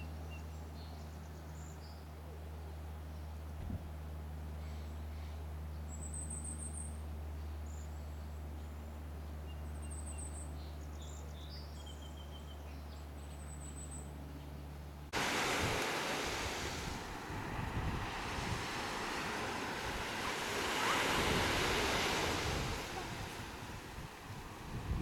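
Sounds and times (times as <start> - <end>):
ocean surf: 15.2 - 25.0
wind buffeting microphone: 15.2 - 25.0.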